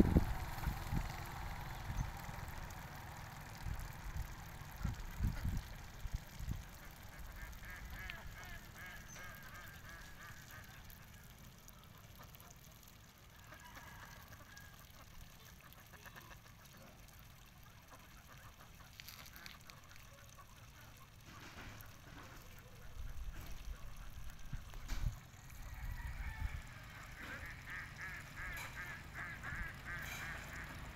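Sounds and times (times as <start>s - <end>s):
wind rumble on microphone: 0.0s - 1.2s, 3.7s - 6.7s, 23.0s - 26.6s
ducks quacking: 6.7s - 11.2s, 13.4s - 25.2s, 26.0s - 30.9s.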